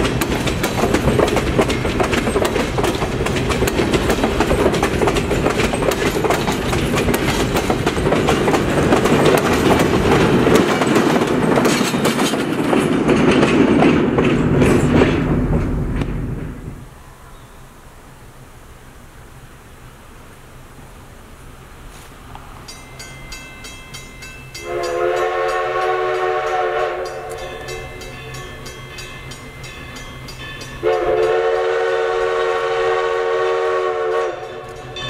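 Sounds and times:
wheels clicking over rail joints: 0.0 - 16.8, 22.3 - 31.6
diesel locomotive passing: 0.0 - 35.0
passenger train passing: 0.0 - 35.0.

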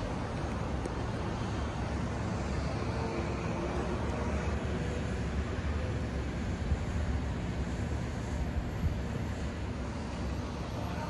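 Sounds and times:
distant traffic: 0.0 - 11.0
wind buffeting microphone: 5.4 - 10.8.

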